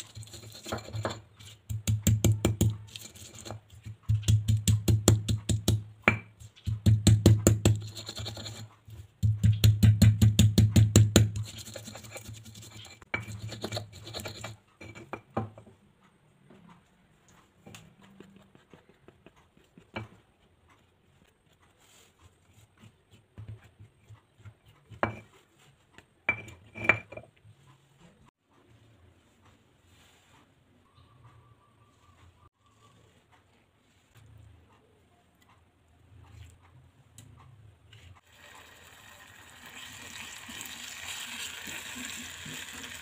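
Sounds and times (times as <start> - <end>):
stone pestle pounding: 0.1 - 15.5
pestle tapping stone mortar: 0.1 - 15.7.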